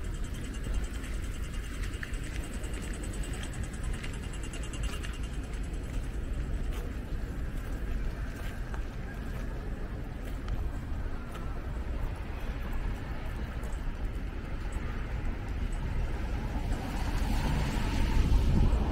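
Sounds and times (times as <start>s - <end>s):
crossing signal ticking: 0.0s - 6.7s
scattered clicks: 0.0s - 7.6s
city traffic rumble: 0.0s - 18.9s.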